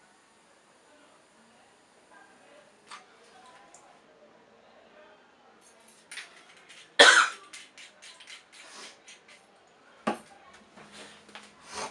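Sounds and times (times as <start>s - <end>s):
breaths: 10.8s - 11.9s.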